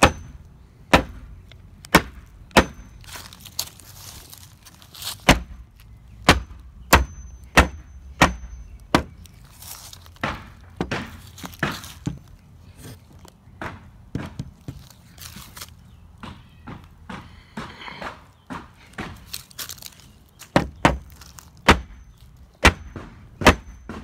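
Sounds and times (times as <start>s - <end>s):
hammer striking nails into wood: 0.0s - 2.9s, 6.2s - 9.2s, 10.2s - 12.2s, 22.6s - 24.0s.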